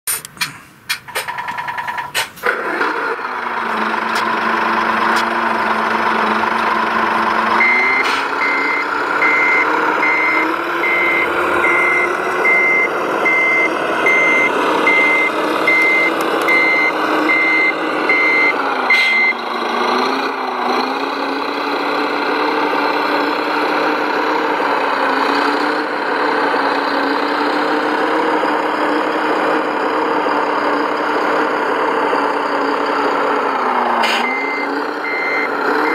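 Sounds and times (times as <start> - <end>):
diesel engine idling and revving: 0.1 - 35.9
reversing beeps: 7.6 - 19.4, 34.1 - 35.9.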